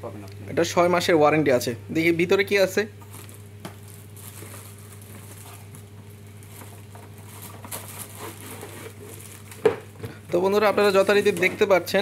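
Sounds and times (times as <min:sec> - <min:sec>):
steady low hum: 0:00.0 - 0:12.0
plastic bag rustling: 0:03.0 - 0:12.0.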